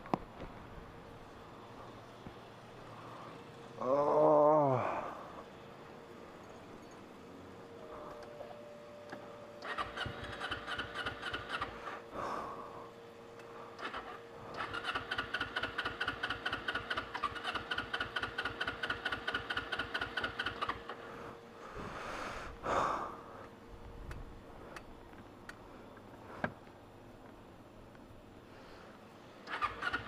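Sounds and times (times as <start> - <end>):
motorcycle starter cranking engine: 9.6 - 11.8, 13.8 - 21.0, 29.4 - 30.0.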